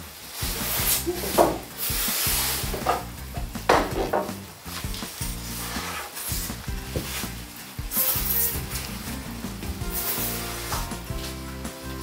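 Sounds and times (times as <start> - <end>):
background music with bass line: 0.0 - 12.0
rubbing and scraping noises: 0.0 - 12.0.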